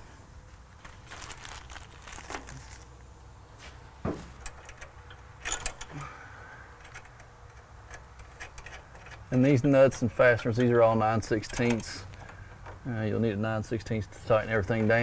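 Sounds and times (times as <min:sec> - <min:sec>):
faint low hum: 0:00.0 - 0:15.0
metal nuts clicking on bolts: 0:04.4 - 0:06.0, 0:06.8 - 0:10.8.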